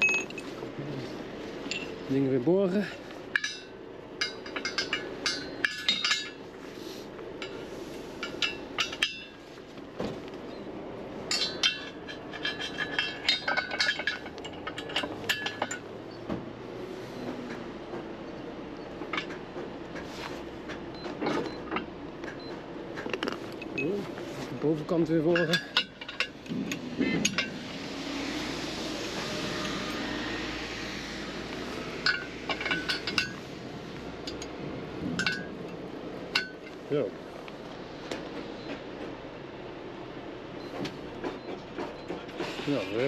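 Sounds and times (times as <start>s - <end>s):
metal pins clinking against steel: 0.0s - 0.6s, 1.6s - 2.0s, 2.8s - 6.4s, 8.2s - 9.4s, 11.2s - 15.9s, 23.0s - 24.1s, 24.8s - 27.6s, 32.0s - 33.4s, 34.2s - 34.6s, 35.2s - 37.1s.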